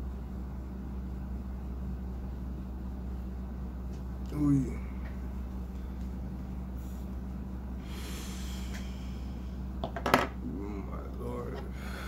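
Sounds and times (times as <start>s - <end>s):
steady low hum: 0.0s - 12.0s
person breathing: 7.8s - 9.7s, 11.7s - 12.0s.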